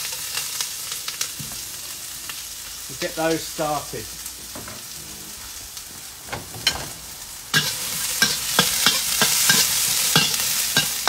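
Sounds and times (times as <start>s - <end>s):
vegetables sizzling in hot oil: 0.0s - 11.0s
metal utensil scraping a wok: 4.2s - 11.0s.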